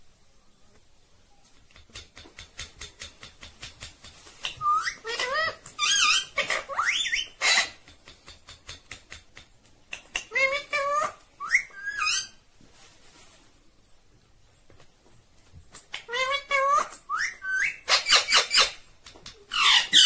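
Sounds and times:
parakeet chattering: 4.4s - 7.9s, 19.5s - 20.0s.

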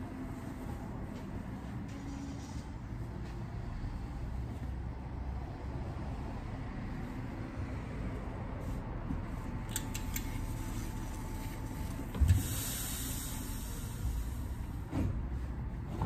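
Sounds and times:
hiss: 12.3s - 14.9s.

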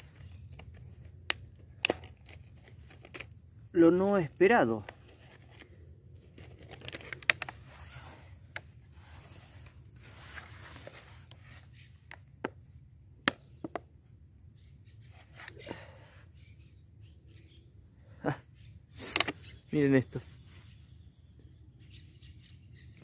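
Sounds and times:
thin plastic rustling and crinkling: 4.9s - 8.3s.

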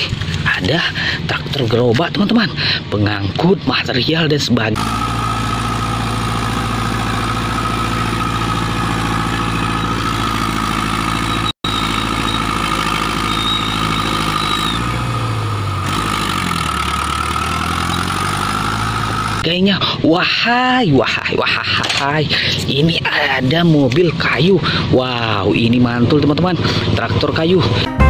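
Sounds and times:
tractor diesel engine under load: 0.0s - 1.6s, 4.8s - 20.0s, 24.4s - 27.9s.

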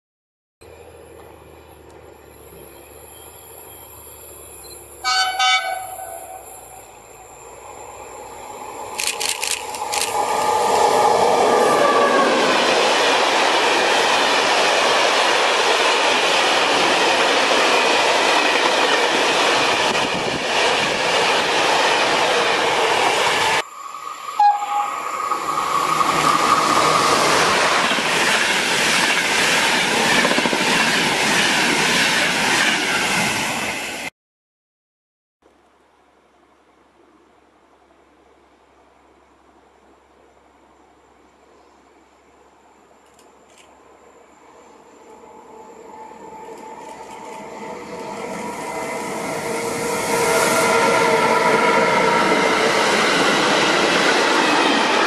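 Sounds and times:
freight train rumbling past: 0.7s - 34.1s, 43.8s - 55.0s
passenger train passing at speed: 0.7s - 34.1s, 43.8s - 55.0s
electric train horn: 5.0s - 6.8s, 11.4s - 12.6s, 24.3s - 25.4s.

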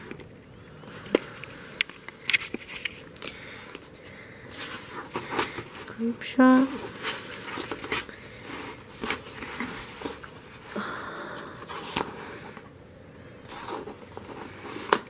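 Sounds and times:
paper rustling: 0.9s - 3.9s, 4.5s - 10.8s, 13.5s - 15.0s.

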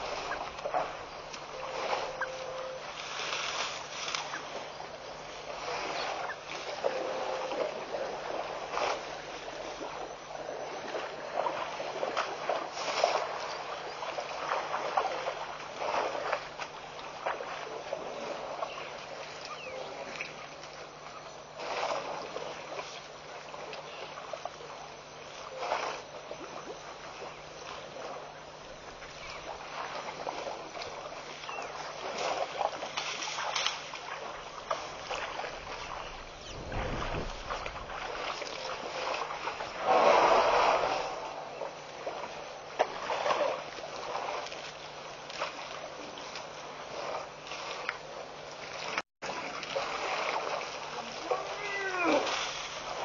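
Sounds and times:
elephant splashing in water: 0.0s - 20.8s, 25.5s - 47.9s, 48.6s - 53.0s
low rumble: 34.4s - 41.6s.

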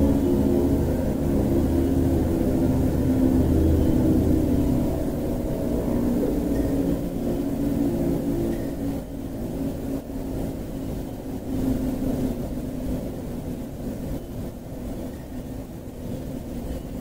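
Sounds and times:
warning siren low steady tone: 0.0s - 16.9s.

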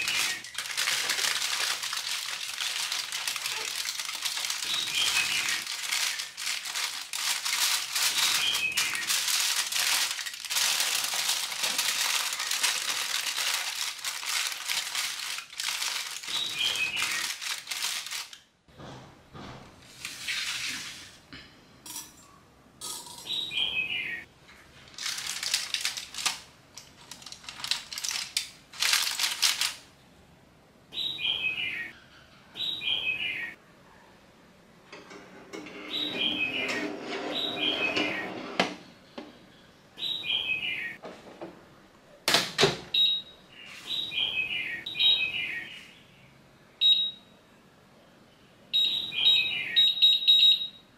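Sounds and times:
aluminium foil crinkling: 0.0s - 18.4s, 24.9s - 29.8s.

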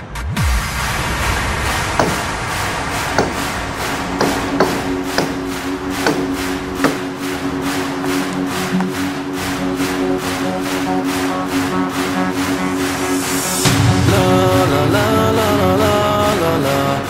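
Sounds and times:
fast beat music: 1.4s - 15.8s.

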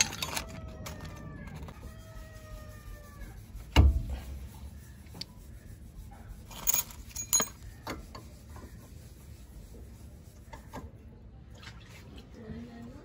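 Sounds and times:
metal parts clinking: 0.0s - 1.1s, 6.5s - 7.7s.

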